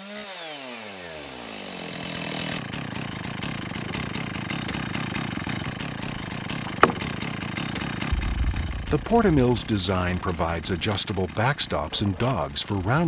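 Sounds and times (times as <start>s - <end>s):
chainsaw engine running: 0.0s - 13.0s
sharp knock: 6.8s - 7.2s.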